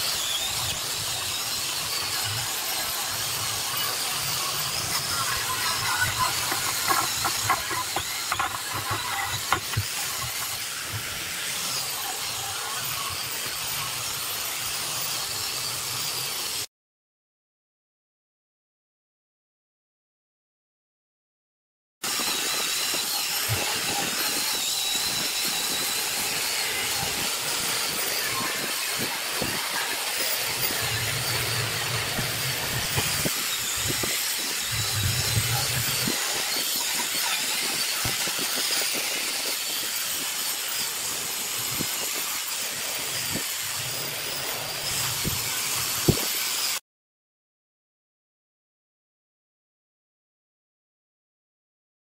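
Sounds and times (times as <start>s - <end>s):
angle grinder on metal: 0.0s - 16.7s, 22.0s - 46.8s.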